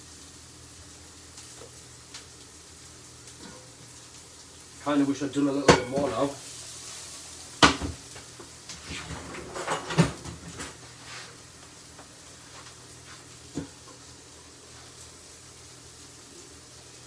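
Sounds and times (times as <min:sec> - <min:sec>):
kitchenware knocks and clinks: 0:05.7 - 0:06.2, 0:09.2 - 0:10.7.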